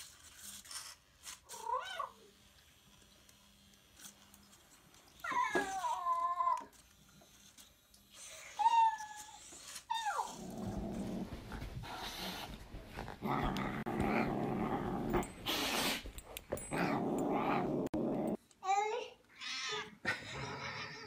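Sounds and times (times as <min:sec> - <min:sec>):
low growling: 0:10.2 - 0:12.4, 0:13.2 - 0:15.4, 0:16.7 - 0:18.4.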